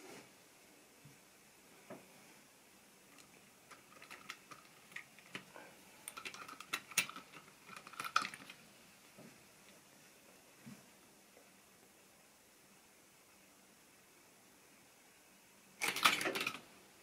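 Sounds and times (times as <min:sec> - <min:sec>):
plastic model wagons clattering: 0:03.2 - 0:08.6, 0:15.8 - 0:16.7.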